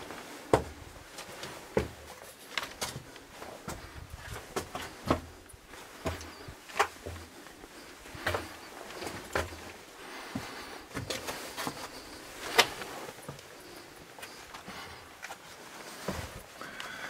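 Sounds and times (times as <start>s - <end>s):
footsteps scuffing on rock: 6.0s - 7.3s.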